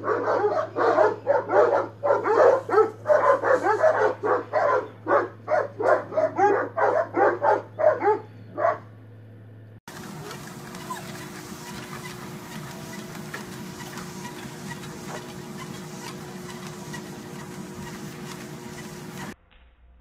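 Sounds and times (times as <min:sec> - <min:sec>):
dogs barking: 0:00.0 - 0:09.0.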